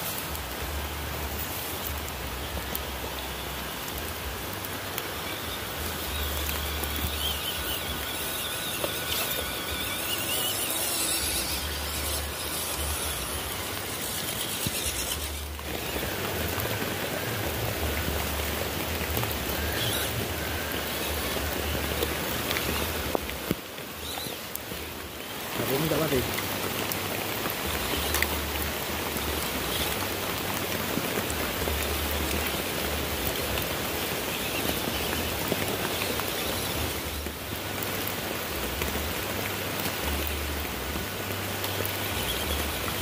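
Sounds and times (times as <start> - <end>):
toy truck motors whining: 5.0 - 26.4, 27.4 - 30.1, 30.8 - 37.4, 41.6 - 43.0.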